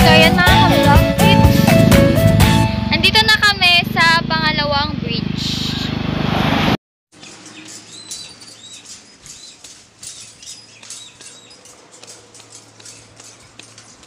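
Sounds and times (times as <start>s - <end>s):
footsteps on steel grating: 7.2s - 14.0s.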